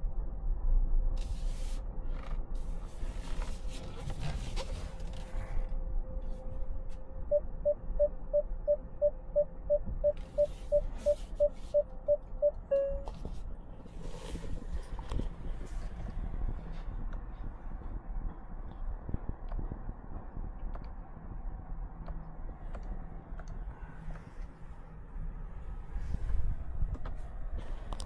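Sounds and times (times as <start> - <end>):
low rumble: 0.0 - 28.0
parking sensor beeps: 7.3 - 13.2.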